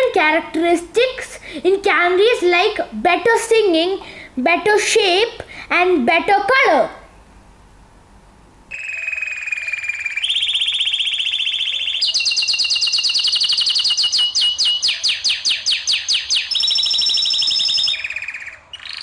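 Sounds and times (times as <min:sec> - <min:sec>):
canary singing trills: 0:08.7 - 0:19.0.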